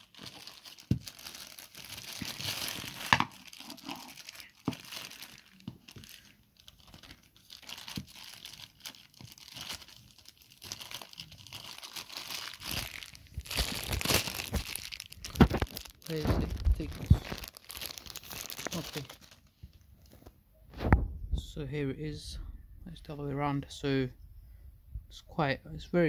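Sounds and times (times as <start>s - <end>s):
plastic bag crinkling and tearing: 0.0s - 20.3s.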